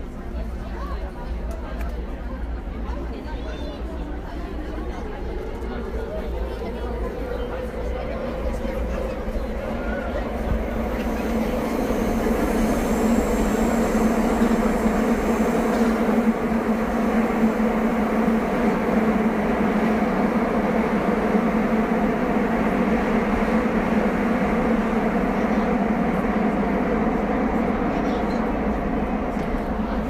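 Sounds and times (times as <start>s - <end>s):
train wheels rumbling on rail: 0.0s - 30.0s
faint high whine: 7.1s - 30.0s.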